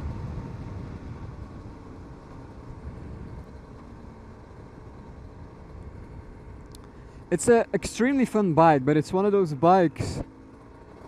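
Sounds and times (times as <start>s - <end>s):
wind rumble on microphone: 0.0s - 7.9s, 9.9s - 10.3s
two-stroke motorcycle engine cruising: 0.0s - 11.0s.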